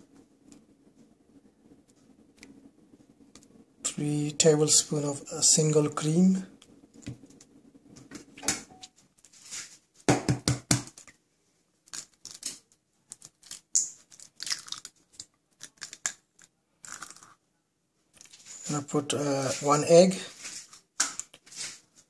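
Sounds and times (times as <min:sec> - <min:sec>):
egg cracking: 0:11.8 - 0:17.4.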